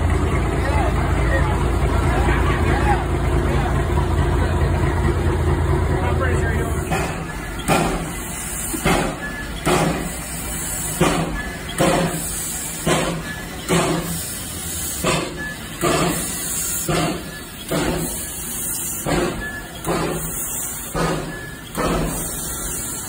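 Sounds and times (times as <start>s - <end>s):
steam locomotive chuffing: 0.0s - 23.0s
steam hissing: 6.2s - 23.0s.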